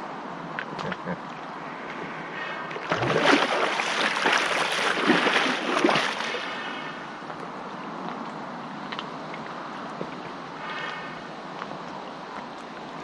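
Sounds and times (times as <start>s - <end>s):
water lapping: 0.8s - 7.3s
water splashing: 2.2s - 7.3s.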